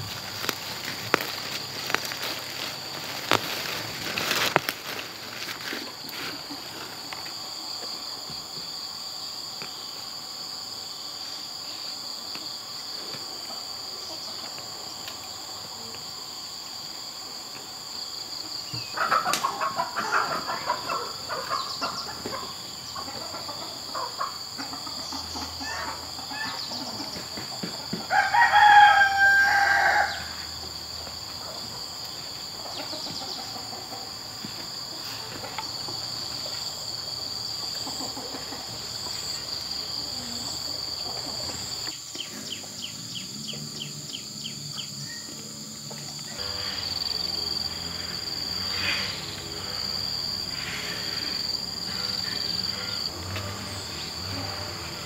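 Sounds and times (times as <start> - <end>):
high insect drone: 0.0 - 55.0
rooster crowing: 28.0 - 30.6, 46.4 - 55.0.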